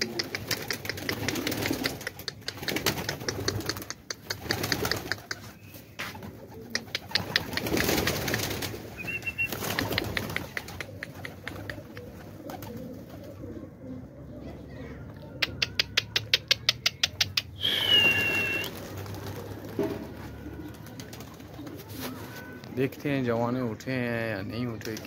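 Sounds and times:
rapid sharp clicks: 0.0 - 5.4, 6.7 - 8.8, 9.5 - 12.1
pigeons cooing: 0.0 - 24.9.

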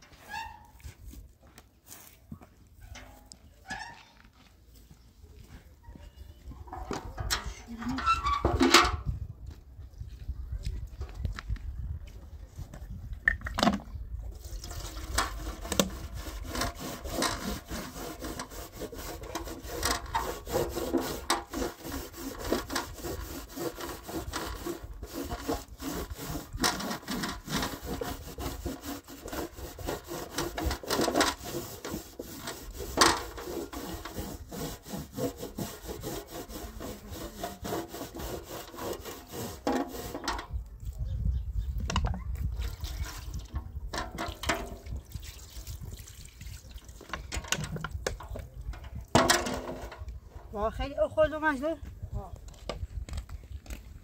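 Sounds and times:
scouring pad scrubbing metal tray: 14.9 - 40.3.

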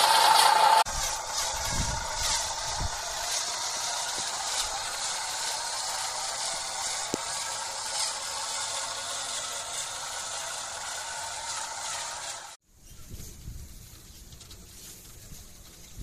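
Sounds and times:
rapid gear clicking: 0.0 - 12.6
toy truck motor whirring: 0.0 - 12.6.

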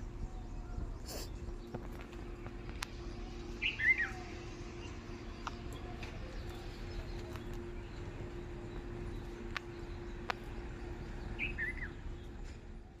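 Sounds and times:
faint steady hum: 0.0 - 13.0
low rumble: 0.0 - 13.0.

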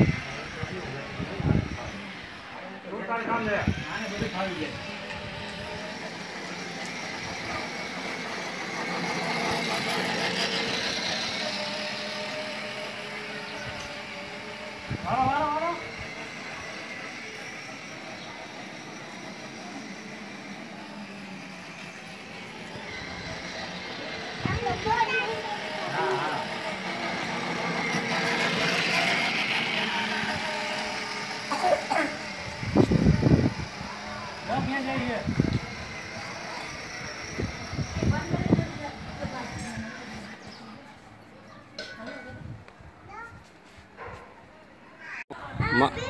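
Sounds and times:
toy motorcycle motor humming: 0.0 - 43.3.

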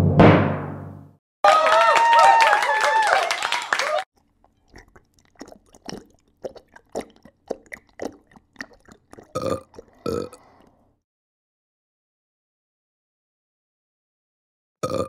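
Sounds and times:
kitten gulping water: 4.2 - 11.0
kitten burps: 4.7 - 10.4.

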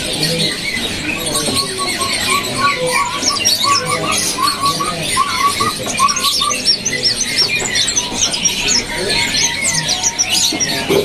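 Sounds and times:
songbirds chirping: 0.0 - 11.0
short lower bird call: 1.7 - 6.7.

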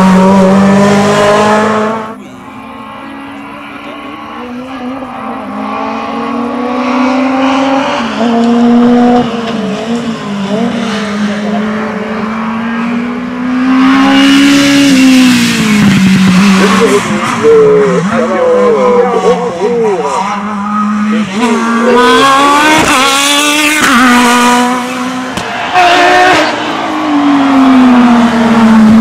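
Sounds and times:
racing car engine at full throttle: 0.0 - 29.0.

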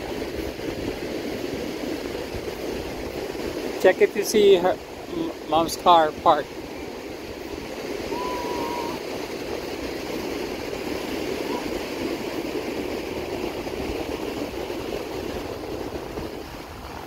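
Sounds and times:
ocean surf breaking: 0.0 - 17.0
wind rumbling on microphone: 0.0 - 17.0
whistle-like tone: 8.1 - 9.0.

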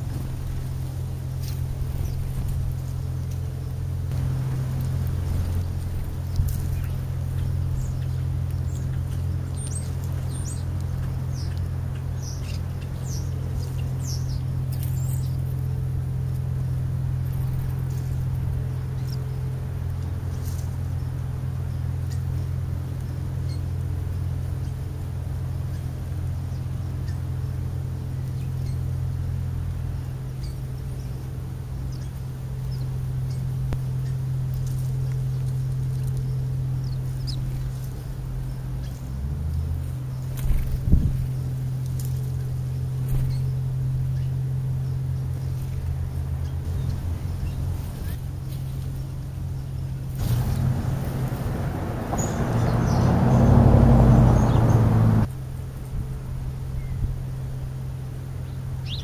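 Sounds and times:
sparrows chirping: 0.0 - 55.9, 56.6 - 59.0
steady low hum: 0.0 - 59.0.

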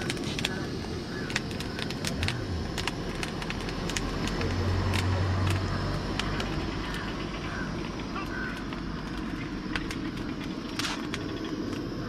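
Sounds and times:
corn crackling on burner: 0.0 - 12.0
vehicle passing: 2.1 - 10.7.

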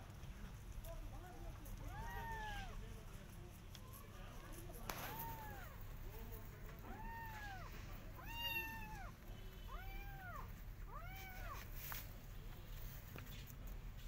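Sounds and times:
cat meowing: 1.8 - 2.8, 4.9 - 5.8, 6.8 - 11.7.

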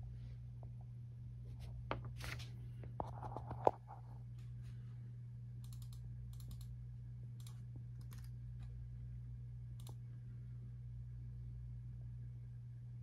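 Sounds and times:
steady low hum: 0.0 - 13.0
faint scattered clicks: 5.6 - 6.7.

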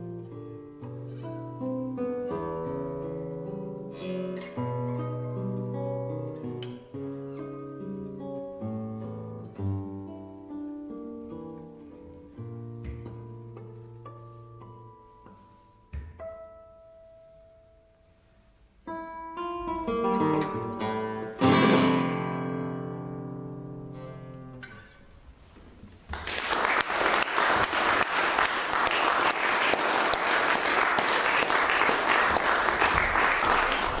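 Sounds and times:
classical guitar playing: 0.0 - 26.1
audience applause: 26.1 - 34.0.

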